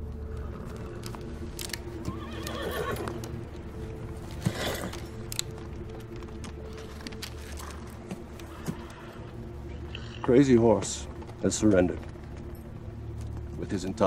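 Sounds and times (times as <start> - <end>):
horse whinnying softly: 2.0 - 3.2, 4.4 - 5.1
horse blowing through nostrils: 4.4 - 5.1.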